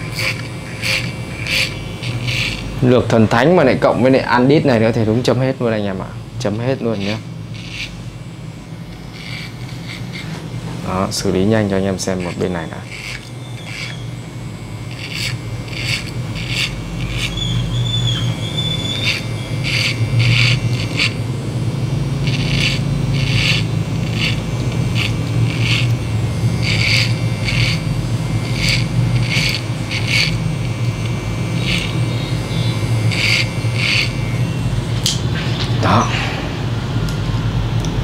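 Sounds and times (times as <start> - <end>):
hair clipper buzzing: 0.0 - 36.2
clipper blade rasping: 0.1 - 2.8, 22.3 - 32.0.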